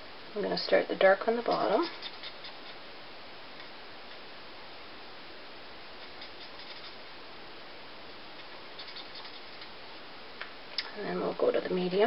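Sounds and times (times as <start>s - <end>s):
marker scratching on cardstock: 1.5s - 2.8s, 6.0s - 7.0s, 8.8s - 9.7s.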